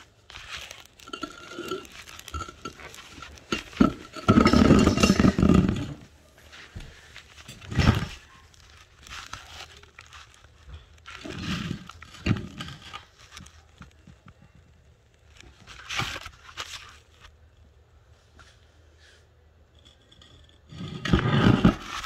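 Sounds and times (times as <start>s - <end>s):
rustling handling noises: 0.0s - 19.6s.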